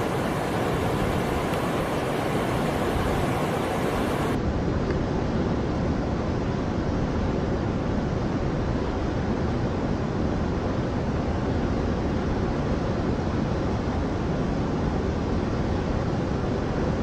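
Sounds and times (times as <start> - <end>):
whitewater rushing over rocks: 0.0 - 4.4.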